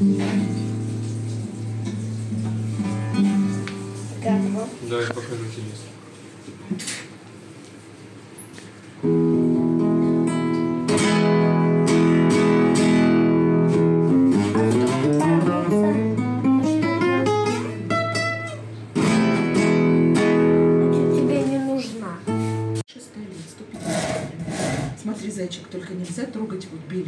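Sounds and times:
classical guitar playing: 0:00.0 - 0:05.5, 0:09.0 - 0:22.8.

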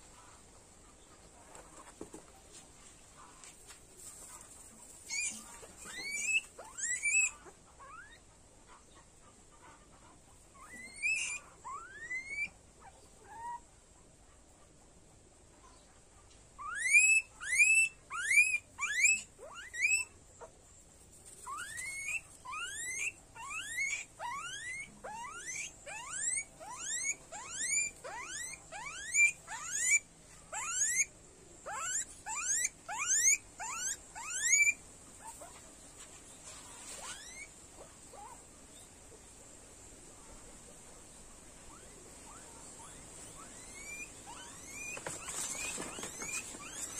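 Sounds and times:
guinea pig squealing: 0:04.3 - 0:08.8, 0:09.5 - 0:13.7, 0:16.6 - 0:20.6, 0:21.2 - 0:35.6, 0:36.7 - 0:38.9, 0:41.6 - 0:46.9.

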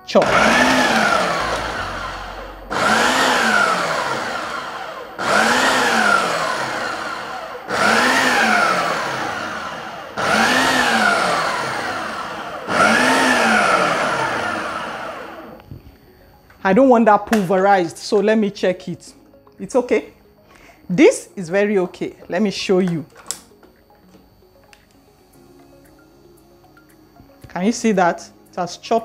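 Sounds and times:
food processor motor pulsing: 0:00.0 - 0:15.7.

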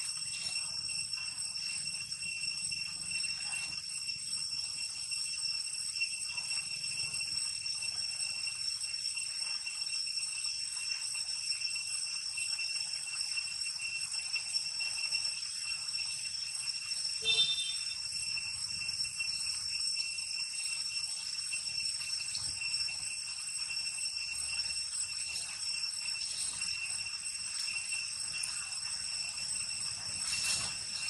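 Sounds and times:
high-pitched insect drone: 0:00.0 - 0:31.0
short squeak: 0:17.2 - 0:18.0.

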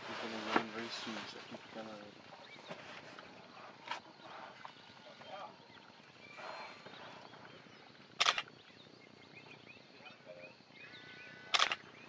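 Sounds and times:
camera shutter clicks: 0:08.2 - 0:08.5, 0:11.5 - 0:11.8.

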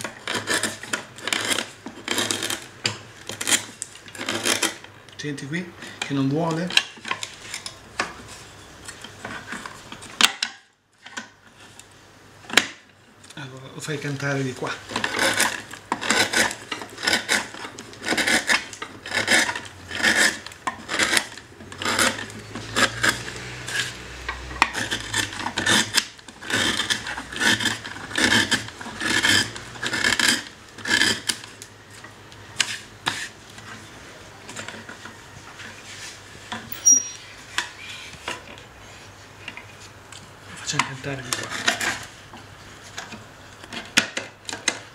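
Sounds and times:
hand tool rasping wood: 0:00.2 - 0:02.6, 0:15.0 - 0:31.4.

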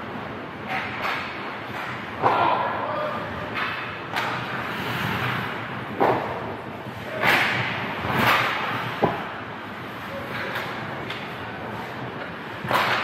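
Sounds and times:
hockey sticks and puck cracking: 0:00.6 - 0:06.4, 0:07.0 - 0:09.4, 0:10.0 - 0:13.0
skates scraping on ice: 0:04.2 - 0:06.3.

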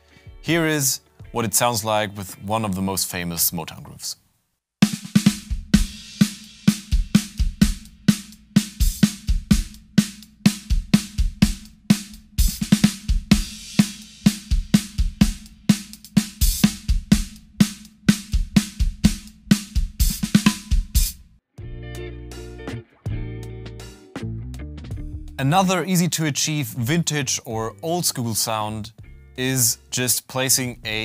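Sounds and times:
drum kit playing a groove: 0:04.8 - 0:21.3, 0:22.3 - 0:25.8, 0:29.0 - 0:29.8.

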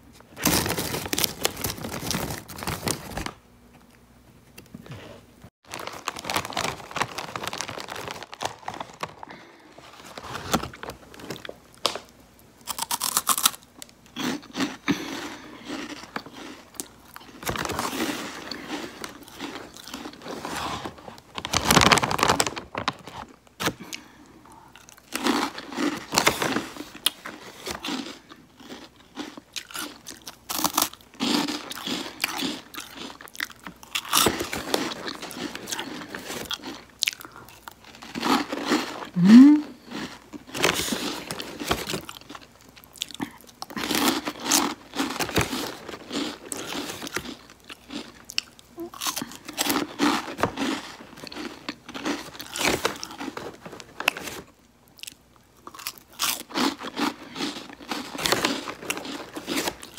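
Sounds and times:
crunchy snack chewing: 0:12.6 - 0:59.9.

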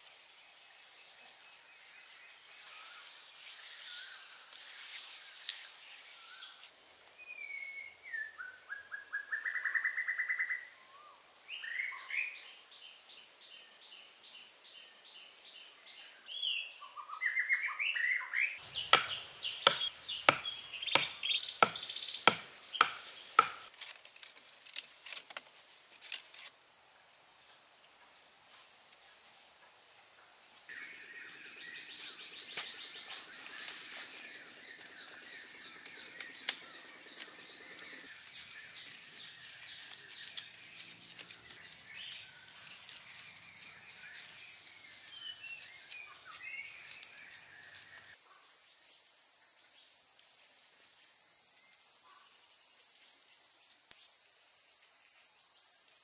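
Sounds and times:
insects droning: 0:00.0 - 0:56.0
wooden stake knocking: 0:18.9 - 0:23.7
sticks rustling and clicking: 0:23.7 - 0:26.5.

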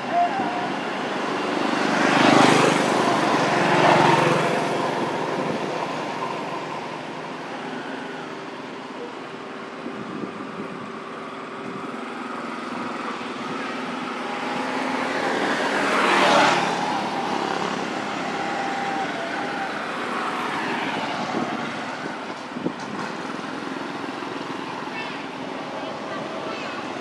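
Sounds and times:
motor vehicle passing by: 0:00.8 - 0:08.0, 0:12.9 - 0:24.0.

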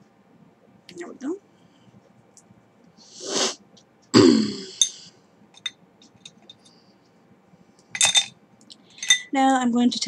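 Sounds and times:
woman clearing her throat: 0:04.2 - 0:04.8.

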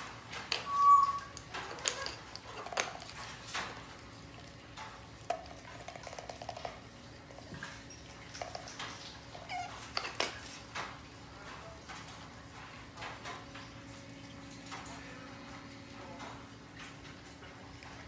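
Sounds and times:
squeaky animal calls: 0:00.7 - 0:01.4.

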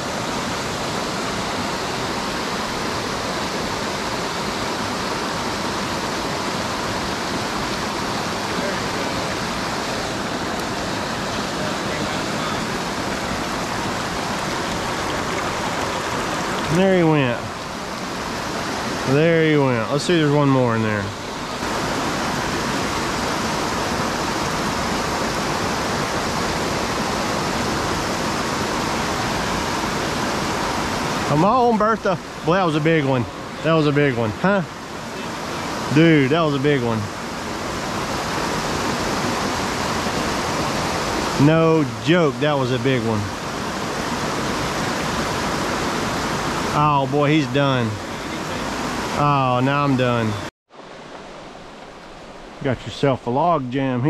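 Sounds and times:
creek water splashing: 0:00.0 - 0:54.0
water spilling over rocks: 0:13.0 - 0:18.0.

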